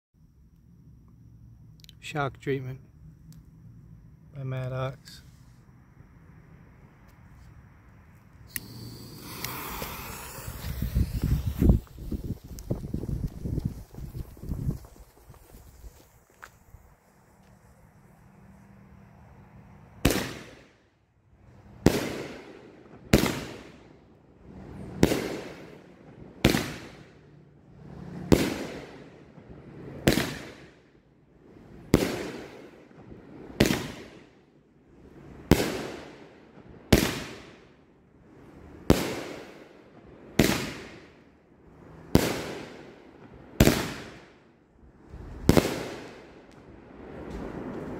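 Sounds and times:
firework bursts: 8.3 - 18.3, 20.0 - 20.8, 21.7 - 30.9, 31.6 - 34.4, 35.1 - 37.6, 38.4 - 44.5, 45.1 - 47.9.

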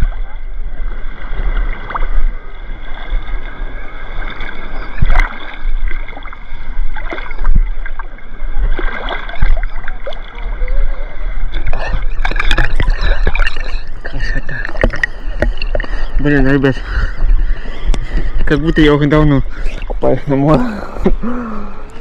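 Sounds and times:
sea water splashing: 0.0 - 22.0
wind rumble on microphone: 0.0 - 22.0.

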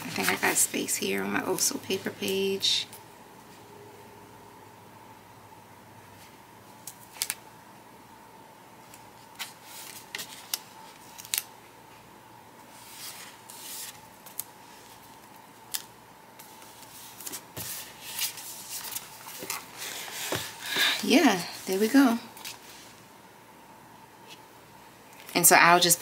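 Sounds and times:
faint steady hum: 0.0 - 26.0
paper rustling: 12.7 - 20.6.

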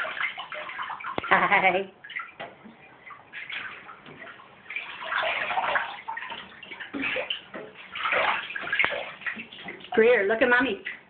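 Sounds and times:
bathwater splashing in a tub: 0.0 - 11.0.

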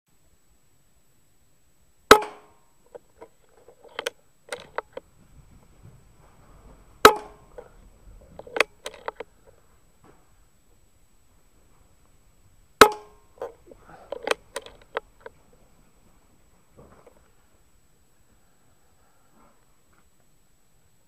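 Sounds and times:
rifle shots: 2.1 - 2.5, 7.0 - 7.4.

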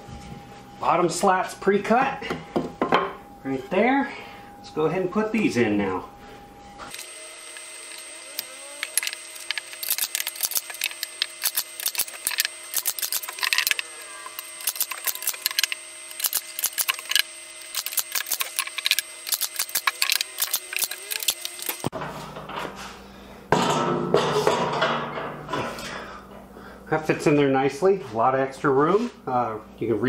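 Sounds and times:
faint steady hum: 0.0 - 30.0
drill driving screws into wood: 6.9 - 21.9
sharp clicks and clatters: 7.6 - 13.8, 14.4 - 21.9.

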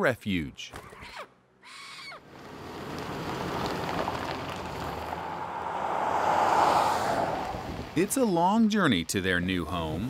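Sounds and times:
highway traffic: 2.2 - 8.4
vehicle approaching: 2.4 - 8.4.

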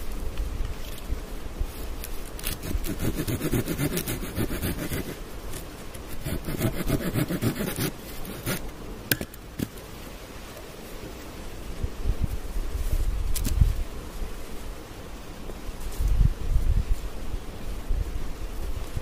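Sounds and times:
hand tool rasping wood: 2.4 - 5.2, 6.1 - 8.6.

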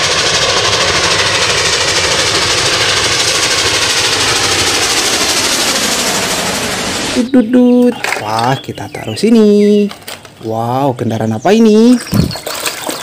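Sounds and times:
steam locomotive exhaust chuffing: 0.0 - 7.4
steady rushing noise: 0.0 - 8.2.

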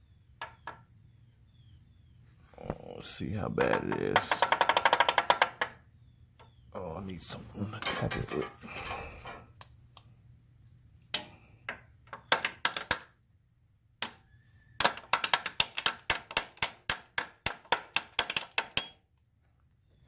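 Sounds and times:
tool tapping on metal: 3.6 - 5.8, 11.1 - 12.8.

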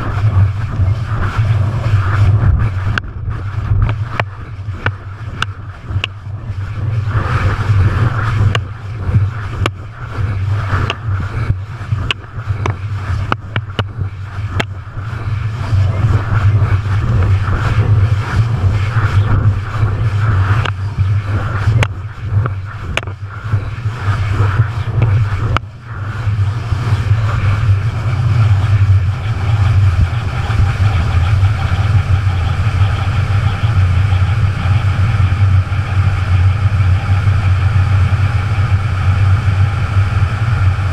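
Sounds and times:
aircraft engine drone: 0.0 - 40.9
rushing noise: 0.0 - 40.9.

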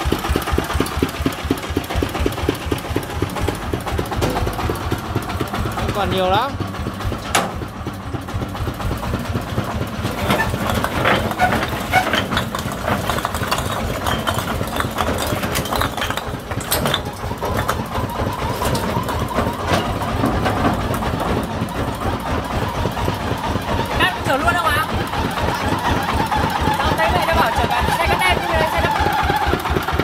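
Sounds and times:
bricks knocking and clacking: 0.0 - 30.0
diesel engine idling: 0.0 - 30.0.

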